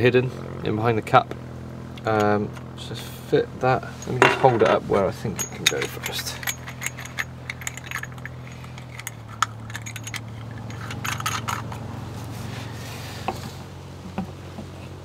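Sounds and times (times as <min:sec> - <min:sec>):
steady low hum: 0:00.0 - 0:15.0
plastic parts clicking and rattling: 0:05.4 - 0:11.8.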